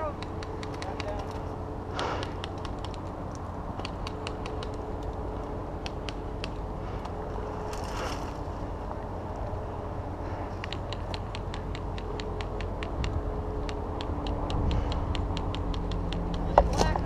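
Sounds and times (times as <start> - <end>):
rapid high ticks: 0.2 - 1.4, 2.0 - 7.2, 10.5 - 16.6
person moving through dry brush: 6.7 - 9.4.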